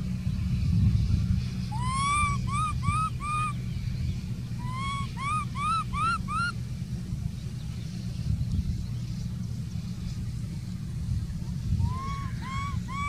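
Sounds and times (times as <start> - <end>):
baby monkey crying: 1.7 - 3.6, 4.6 - 6.5, 11.8 - 13.0.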